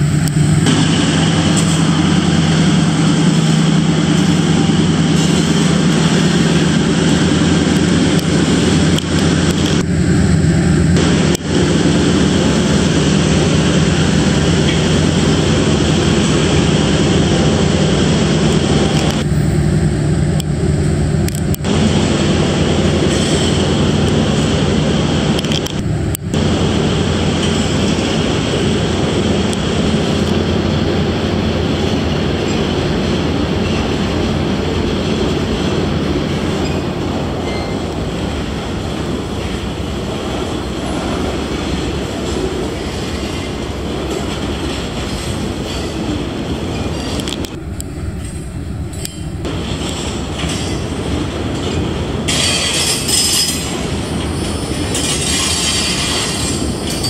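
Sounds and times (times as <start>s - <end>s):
wheels clacking over rail joints: 0.0s - 9.9s, 10.9s - 57.0s
freight train rumbling over rails: 0.0s - 57.0s
high-pitched wheel squeal: 37.4s - 37.9s.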